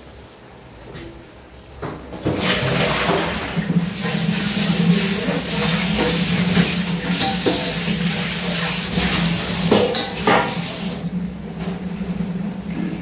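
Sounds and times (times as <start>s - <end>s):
steady hiss: 0.0s - 11.3s
metal bowl and pots clinking: 5.0s - 10.6s.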